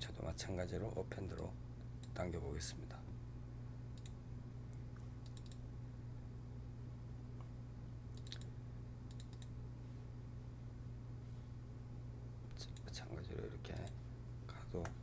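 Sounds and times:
low electrical hum: 0:00.0 - 0:15.0
computer mouse clicks: 0:04.0 - 0:04.2, 0:05.0 - 0:05.6, 0:08.1 - 0:08.5, 0:09.1 - 0:09.5.

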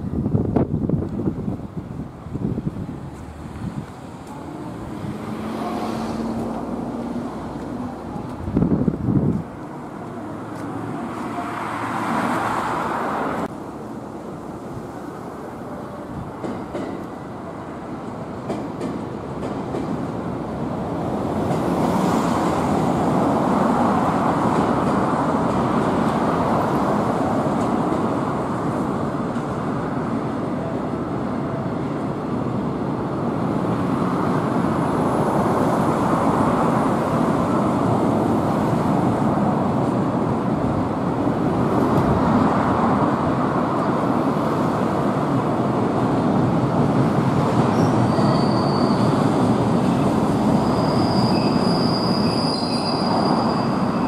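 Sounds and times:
train wheels on rail: 0:00.0 - 0:54.0
high-pitched wheel squeals: 0:47.7 - 0:49.3, 0:49.9 - 0:54.0.

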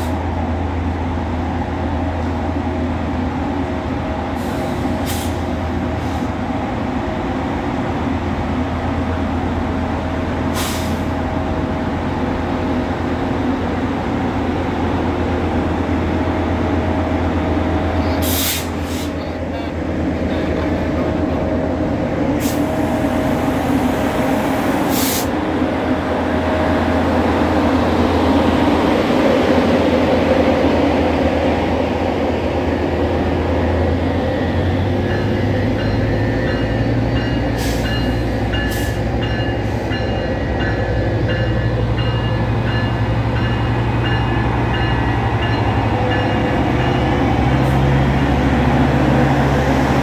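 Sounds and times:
diesel locomotive running: 0:00.0 - 0:50.0
compressed air hisses: 0:18.2 - 0:19.2, 0:24.8 - 0:25.3.

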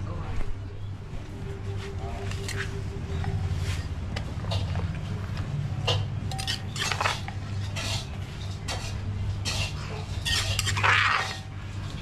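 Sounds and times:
spoon scraping mortar: 0:06.3 - 0:11.5.

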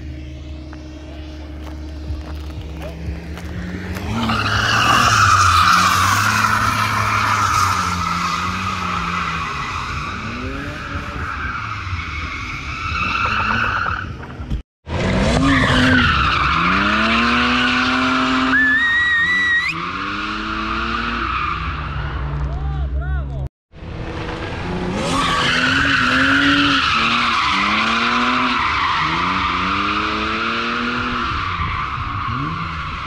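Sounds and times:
car engine revving: 0:00.0 - 0:13.9.

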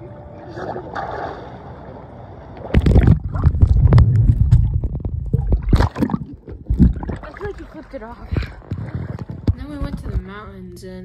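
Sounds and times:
water rushing over microphone: 0:02.6 - 0:10.2
muffled underwater gurgling: 0:02.7 - 0:10.3.

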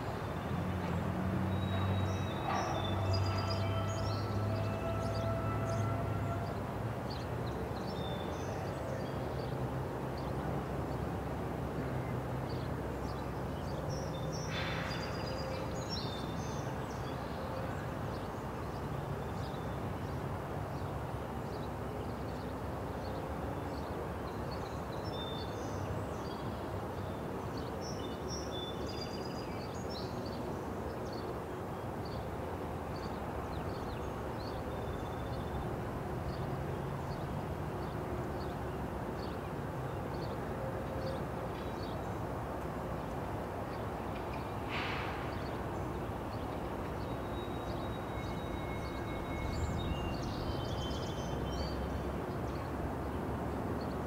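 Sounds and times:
short hiss: 0:44.7 - 0:45.4.

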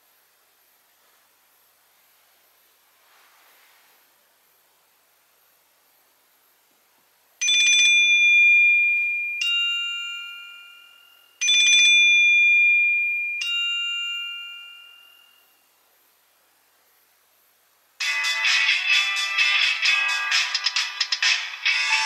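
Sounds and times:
bell-like two-note ringtone: 0:07.4 - 0:15.6, 0:18.0 - 0:22.0.

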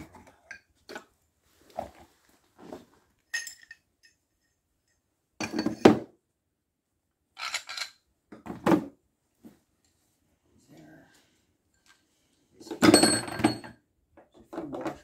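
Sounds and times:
metal parts clattering into case: 0:07.4 - 0:08.0.

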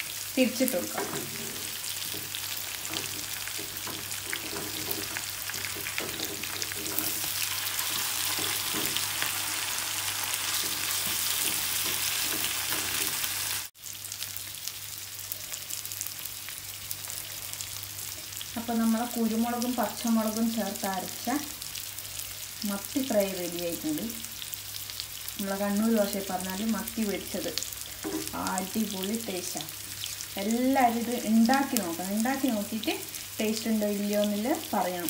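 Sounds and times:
fish sizzling in oil: 0:00.0 - 0:35.0
wooden spatula scraping pan: 0:01.0 - 0:09.4, 0:10.4 - 0:13.3.

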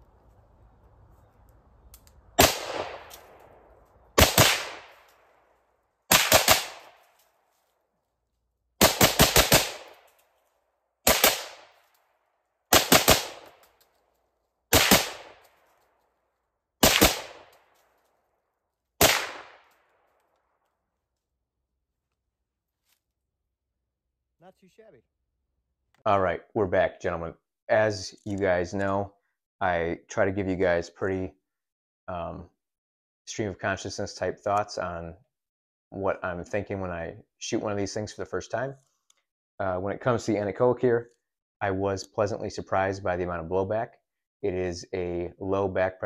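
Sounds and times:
suppressed rifle shots: 0:02.4 - 0:03.4, 0:04.2 - 0:05.0, 0:06.1 - 0:07.0, 0:08.8 - 0:10.1, 0:11.0 - 0:11.8, 0:12.7 - 0:13.6, 0:14.7 - 0:15.4, 0:16.8 - 0:17.6, 0:19.0 - 0:19.7
gunshot echo: 0:02.4 - 0:03.6, 0:04.2 - 0:05.0, 0:14.7 - 0:15.4, 0:16.8 - 0:17.7, 0:19.0 - 0:19.7.

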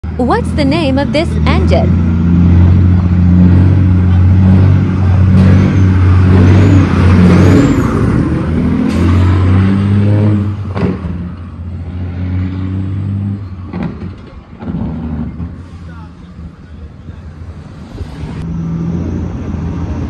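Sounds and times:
truck diesel engine pulling away: 0:00.0 - 0:20.0.

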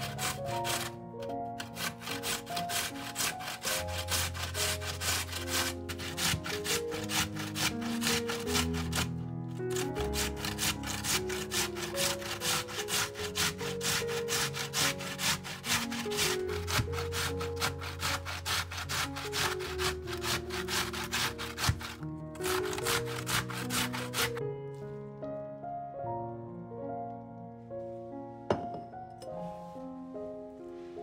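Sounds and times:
vegetable rasping on grater: 0:00.0 - 0:24.4
soft background music: 0:00.0 - 0:31.0.

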